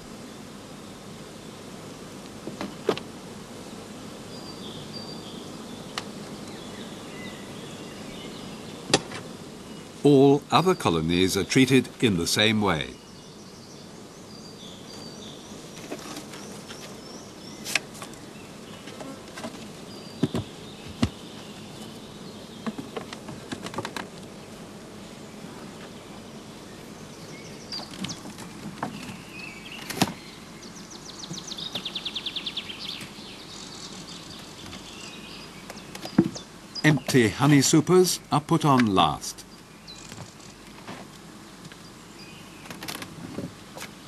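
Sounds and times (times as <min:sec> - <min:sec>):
honeybees buzzing: 0:00.0 - 0:44.0
clicks and knocks of hive tools: 0:02.2 - 0:03.1, 0:05.9 - 0:06.6, 0:08.9 - 0:09.3, 0:15.8 - 0:17.0, 0:17.6 - 0:18.2, 0:18.8 - 0:21.9, 0:22.6 - 0:24.3, 0:27.7 - 0:30.2, 0:35.6 - 0:37.2, 0:39.6 - 0:41.8, 0:42.6 - 0:44.0.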